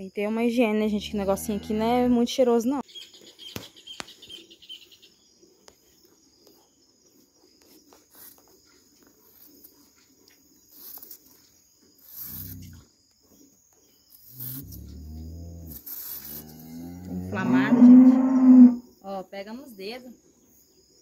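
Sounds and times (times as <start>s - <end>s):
faint insect drone: 0.0s - 21.0s
cattle lowing: 12.2s - 12.9s.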